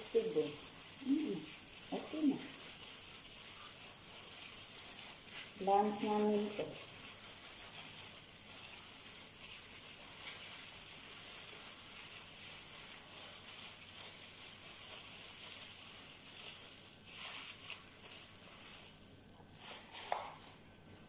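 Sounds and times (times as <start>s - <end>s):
plastic bag rustling: 0.0s - 21.0s
steady high hiss: 0.0s - 21.0s.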